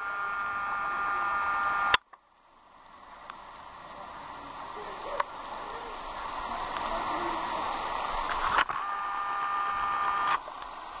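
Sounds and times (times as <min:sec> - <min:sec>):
multi-tone hum: 0:00.0 - 0:11.0
rain on pond and foliage: 0:00.0 - 0:11.0.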